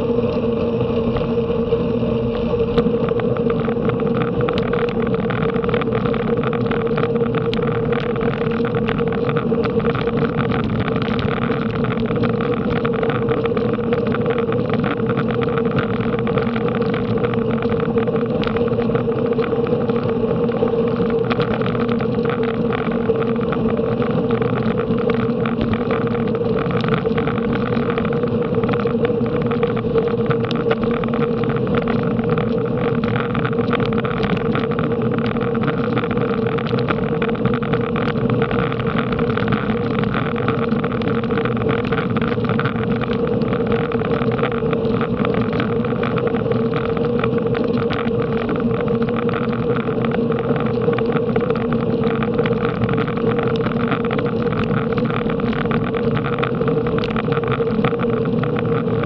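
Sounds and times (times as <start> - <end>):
constant low hum: 0.0 - 59.0
wind rush and road noise: 0.0 - 59.0.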